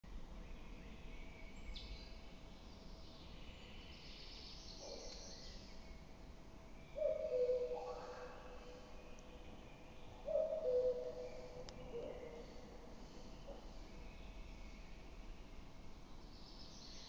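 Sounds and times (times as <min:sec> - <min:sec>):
small birds singing faintly: 0:00.1 - 0:17.0
cuckoo calling: 0:07.0 - 0:08.3, 0:10.3 - 0:12.4.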